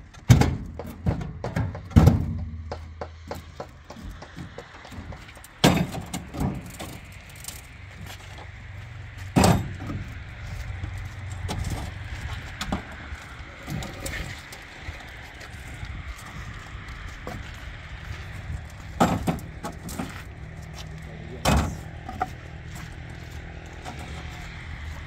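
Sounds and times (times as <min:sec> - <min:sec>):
concrete blocks knocking on metal: 0:00.3 - 0:06.3.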